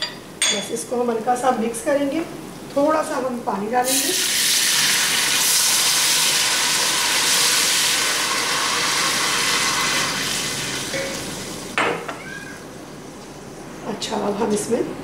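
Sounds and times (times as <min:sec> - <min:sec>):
hot oil sizzling with steam: 0:03.8 - 0:11.8
water poured into pot: 0:03.9 - 0:11.6.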